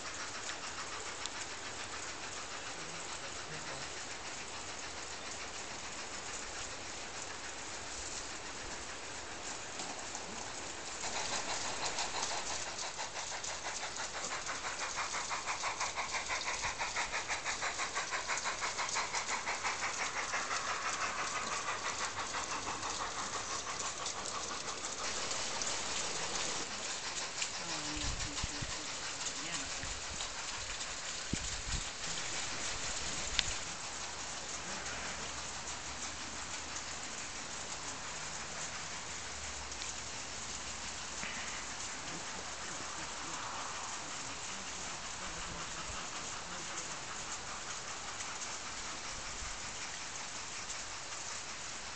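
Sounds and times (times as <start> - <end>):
model train running on track: 0.0 - 51.9.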